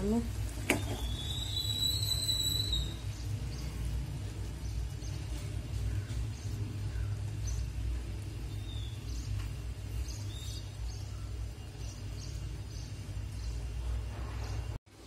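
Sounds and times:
faint bird chirps: 0.8 - 3.9.

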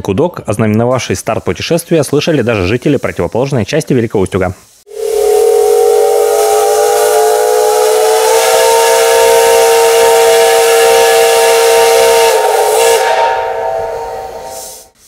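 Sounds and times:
rush of steam: 1.4 - 15.0
steam locomotive whistle blast: 4.9 - 15.0.

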